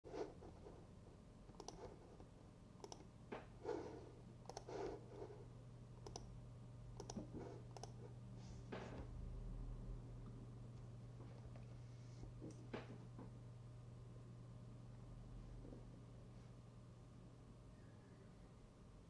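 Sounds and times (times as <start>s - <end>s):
low steady hum: 0.1s - 19.0s
computer mouse clicks: 1.5s - 2.0s, 2.8s - 3.1s, 4.4s - 5.0s, 6.0s - 6.3s, 7.0s - 8.1s.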